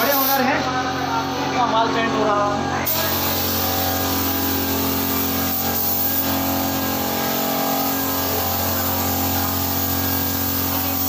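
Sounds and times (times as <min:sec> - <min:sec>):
air compressor humming: 0:00.0 - 0:11.0
air hissing: 0:02.9 - 0:11.0.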